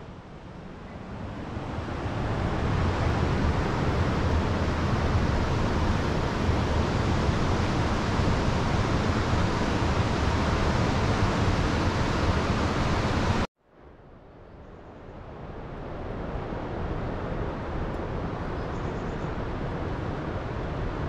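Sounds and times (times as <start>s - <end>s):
low buffeting rumble: 0.0s - 13.5s
wind rushing over microphone: 0.0s - 13.5s, 15.0s - 21.0s.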